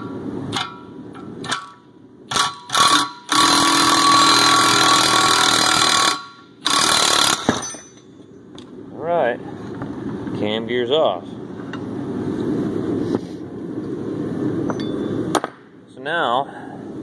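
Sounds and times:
power tool driving screw: 1.4 - 7.7.

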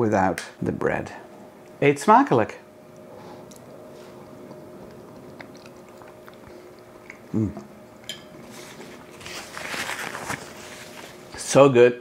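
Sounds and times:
faint chewing: 2.9 - 11.2.

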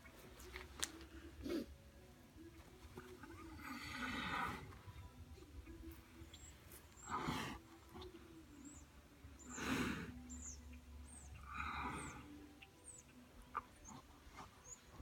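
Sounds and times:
small birds chirping: 2.4 - 15.0
bear breathing heavily: 3.5 - 4.9, 6.8 - 8.0, 9.4 - 10.6, 11.4 - 12.4.

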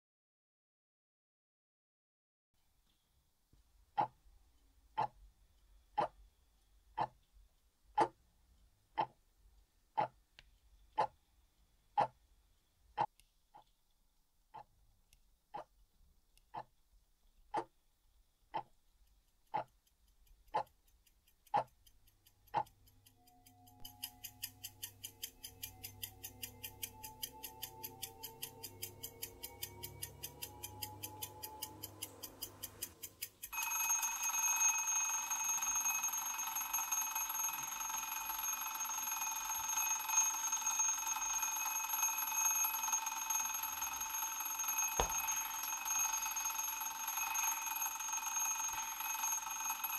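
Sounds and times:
alarm clock ticking: 18.5 - 49.9
alarm clock ringing: 23.4 - 49.9.

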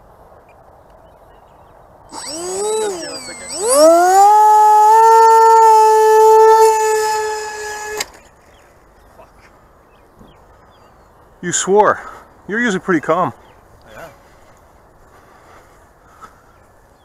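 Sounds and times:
electric motor and propeller whine: 2.1 - 8.3.

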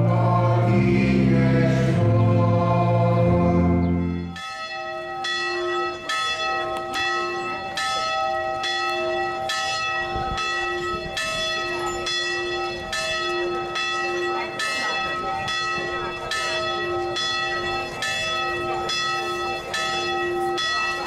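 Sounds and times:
congregation singing with organ: 0.0 - 4.4
church bells ringing: 0.0 - 21.0.

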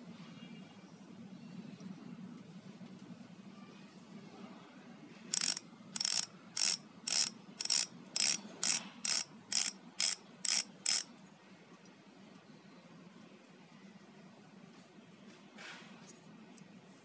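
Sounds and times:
bicycle freehub clicking: 5.3 - 11.1.

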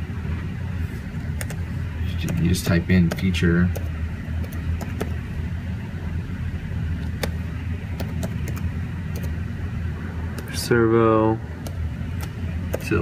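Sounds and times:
steady low hum: 0.0 - 13.0
laptop keys clicking: 1.4 - 1.6, 2.2 - 5.2, 7.0 - 7.4, 8.0 - 9.3, 11.6 - 13.0.

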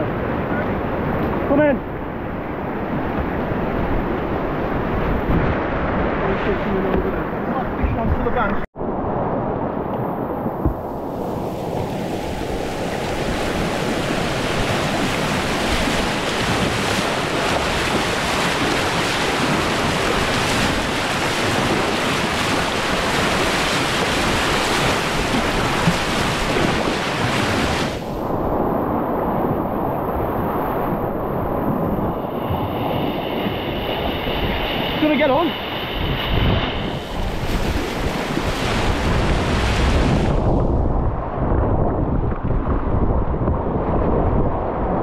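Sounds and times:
wind buffeting microphone: 0.0 - 45.0
whitewater rushing: 11.4 - 28.1.

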